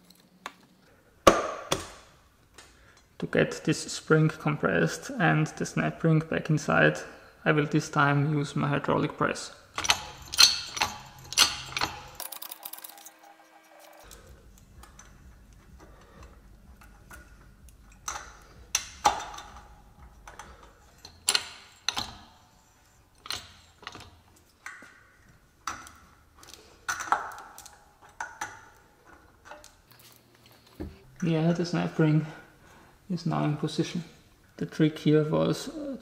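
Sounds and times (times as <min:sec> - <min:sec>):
metallic clicks and clinks: 0:09.7 - 0:22.4, 0:23.1 - 0:31.3.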